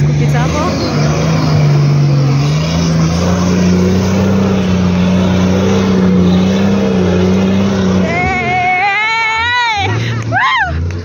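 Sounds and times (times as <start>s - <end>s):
engine revving hard under load: 0.0s - 11.0s.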